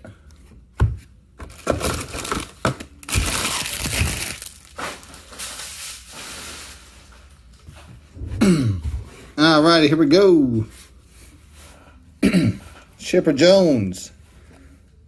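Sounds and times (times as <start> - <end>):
foil wrappers crinkling: 1.4 - 7.6.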